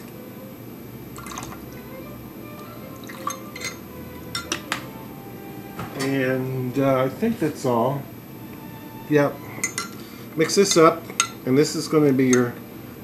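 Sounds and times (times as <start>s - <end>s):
liquid dripping and trickling: 2.9s - 3.5s
metal spoon clinking on glass: 3.3s - 4.7s, 9.6s - 11.4s.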